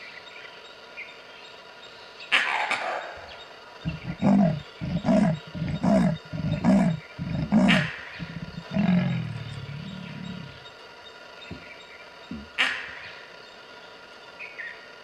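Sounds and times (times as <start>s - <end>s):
leopard grunting call: 3.8s - 10.7s, 12.3s - 12.6s.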